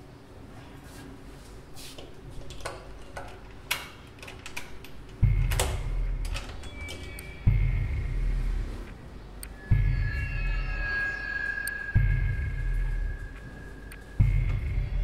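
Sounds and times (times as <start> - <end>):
keys rattling in door lock: 2.4 - 7.2
deep rumble: 5.2 - 15.0
thin high tone: 9.5 - 14.2.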